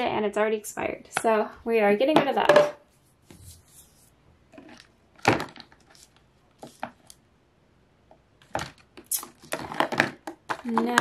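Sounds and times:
plastic bottles knocking and clicking: 2.2s - 2.8s, 4.6s - 5.9s, 8.4s - 11.0s.

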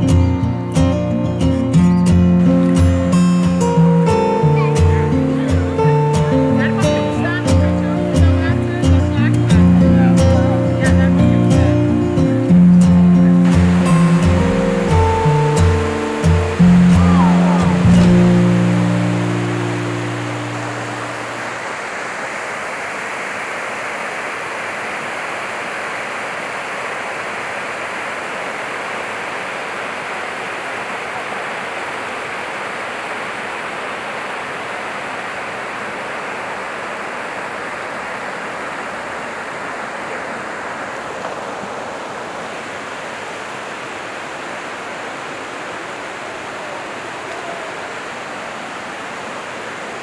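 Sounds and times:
water rushing and falling: 0.0s - 50.0s.

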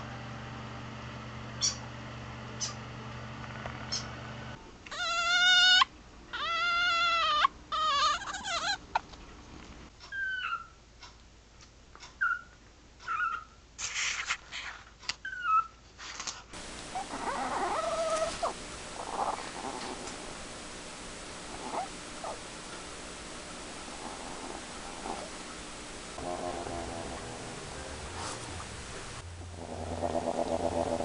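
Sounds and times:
genet high squeaks: 17.0s - 19.4s, 21.6s - 22.4s.

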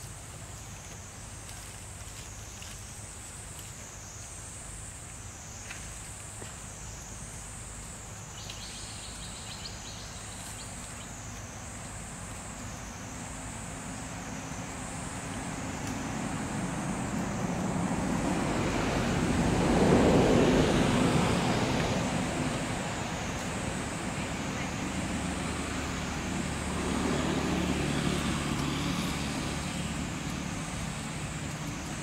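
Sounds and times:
insect drone: 0.0s - 32.0s
vehicle passing by: 13.8s - 32.0s.

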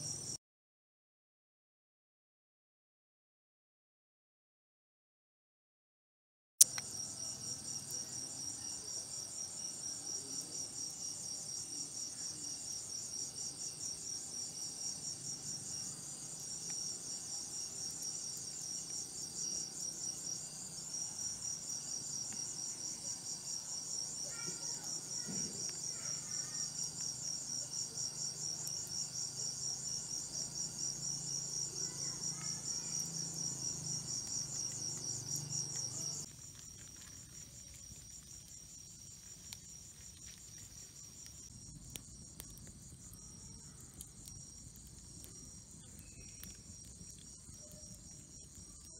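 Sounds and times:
night insects trilling: 0.0s - 0.4s, 6.6s - 48.9s
click: 6.6s - 6.9s
faint chirps: 45.2s - 48.9s.

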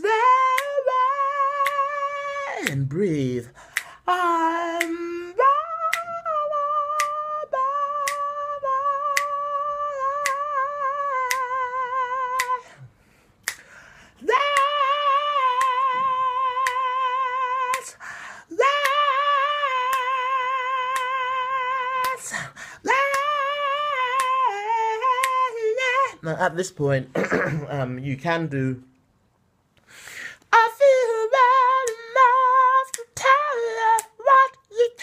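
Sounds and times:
man singing with vibrato: 0.0s - 13.0s, 13.6s - 28.9s, 30.2s - 35.0s
finger snaps: 3.7s - 4.0s, 4.8s - 5.0s, 5.9s - 6.1s, 6.9s - 7.3s, 8.0s - 8.4s, 9.1s - 9.4s, 10.2s - 10.5s, 11.3s - 11.5s, 12.4s - 12.6s, 13.4s - 13.7s, 14.5s - 14.8s, 20.9s - 21.2s, 23.1s - 23.4s, 24.1s - 24.4s, 25.2s - 25.4s, 32.9s - 33.2s.

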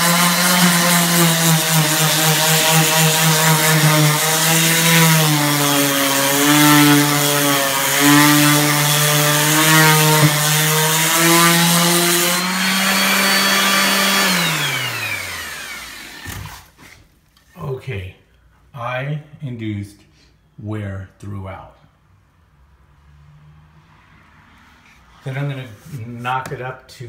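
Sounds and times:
sandpaper scraping wood: 0.0s - 15.1s
orbital sander motor: 0.0s - 16.6s.

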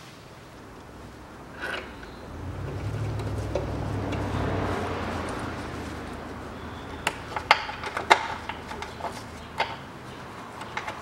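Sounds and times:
low rumble: 0.6s - 7.4s.

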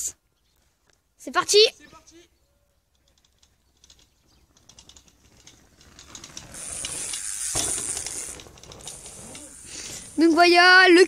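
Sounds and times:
bicycle freewheel ticking: 3.1s - 11.0s
bicycle landing thump: 6.1s - 10.1s
tyres hissing over dirt: 6.5s - 11.0s.

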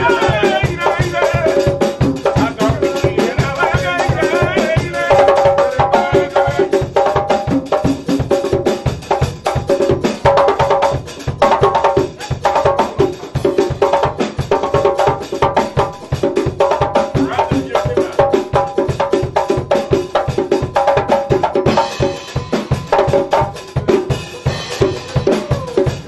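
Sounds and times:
drum kit fast beat: 0.0s - 26.0s.

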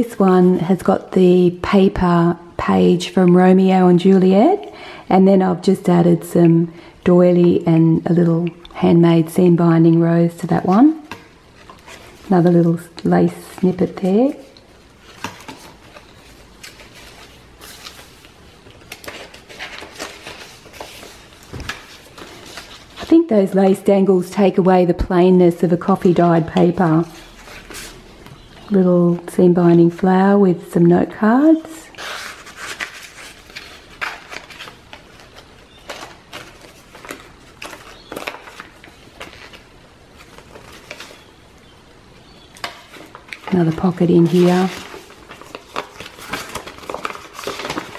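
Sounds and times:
paper pages turning: 10.6s - 23.2s, 31.4s - 41.3s, 42.6s - 47.9s
soft paper rustles and taps: 10.7s - 23.6s, 42.6s - 47.9s.

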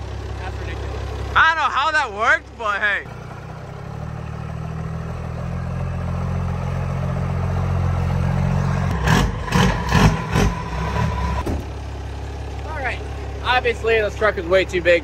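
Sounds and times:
diesel truck engine running: 0.0s - 15.0s.

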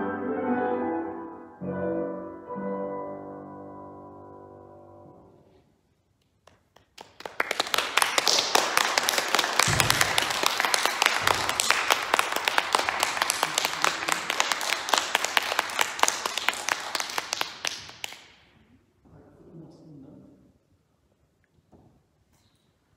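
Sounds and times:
piano chord: 0.0s - 5.4s
audience applause: 7.0s - 18.3s.

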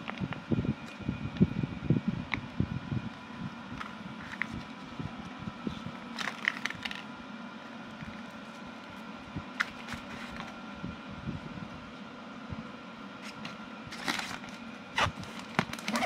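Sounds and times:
steady fan hum: 0.0s - 16.0s
plastic packaging crinkling: 3.8s - 4.9s, 6.0s - 7.1s, 13.2s - 16.0s.

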